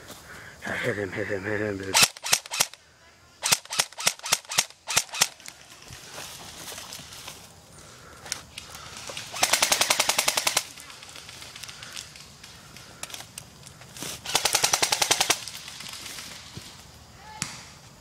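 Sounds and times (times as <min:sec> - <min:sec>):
airsoft rifle full-auto bursts: 0:01.9 - 0:02.8, 0:03.4 - 0:05.4, 0:09.3 - 0:10.8, 0:14.2 - 0:15.4.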